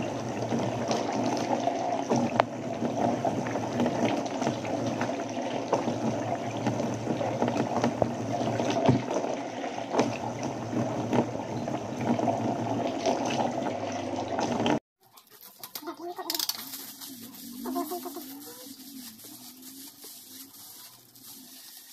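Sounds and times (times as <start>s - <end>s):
water pouring into bathtub: 0.0s - 14.8s.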